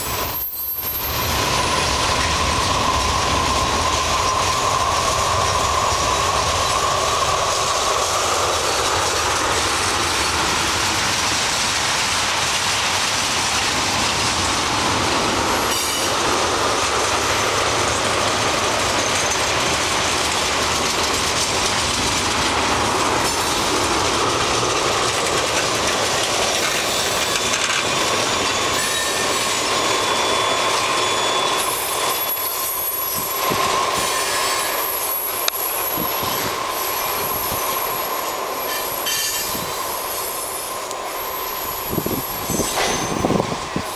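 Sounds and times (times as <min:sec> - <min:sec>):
high wheel squeal: 0:00.0 - 0:07.3, 0:15.4 - 0:19.8, 0:24.9 - 0:43.9
train wheels rushing on rail: 0:00.0 - 0:43.9.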